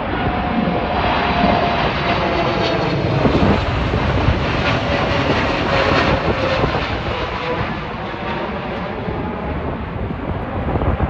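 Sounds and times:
jet airliner engine roar: 0.0s - 11.0s.

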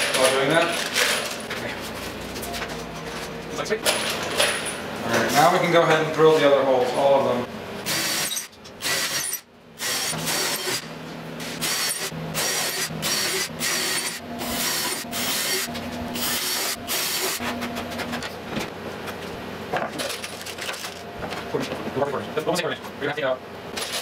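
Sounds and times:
cordless drill boring through metal: 7.9s - 10.8s, 11.6s - 17.4s.

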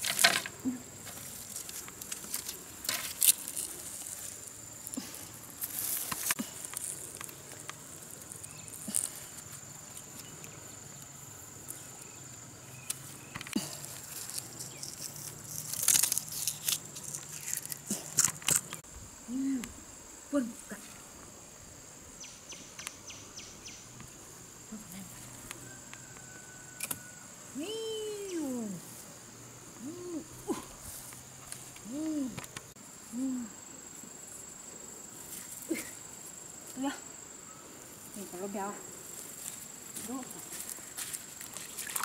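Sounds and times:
rustling: 0.0s - 12.0s.

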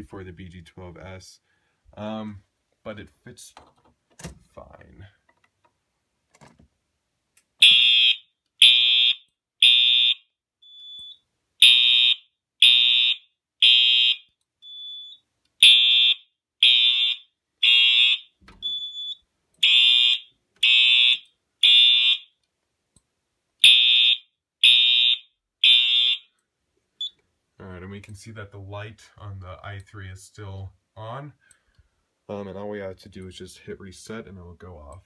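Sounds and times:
fire alarm horn blasts: 7.6s - 10.3s, 11.6s - 14.2s, 15.6s - 22.3s, 23.6s - 26.3s.

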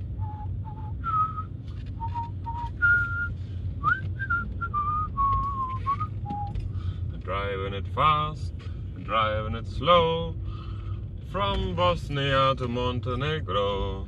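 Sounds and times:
car engine drone: 0.0s - 14.0s
road noise inside car: 0.0s - 14.0s
man whistling a tune: 0.2s - 6.6s.

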